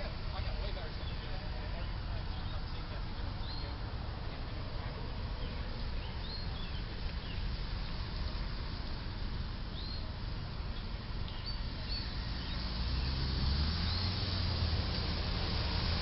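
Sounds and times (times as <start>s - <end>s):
road traffic noise: 0.0s - 16.0s
vehicle engine hum: 0.0s - 16.0s
bird chirps: 5.4s - 7.5s, 9.7s - 10.1s, 10.8s - 13.2s.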